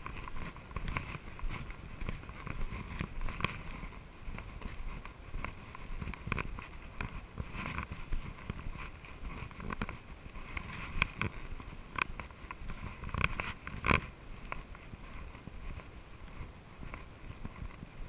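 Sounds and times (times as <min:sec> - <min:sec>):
bike clicks and rattles: 0:00.0 - 0:18.0.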